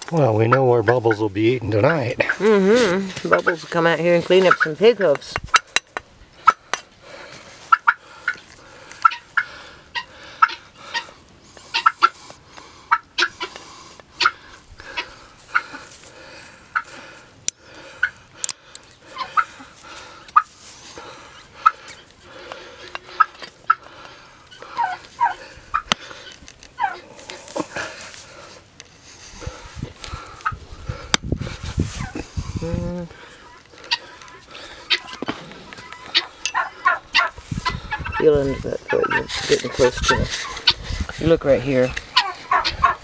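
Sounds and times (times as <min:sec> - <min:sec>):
hoof nippers snapping: 0:21.6 - 0:28.9.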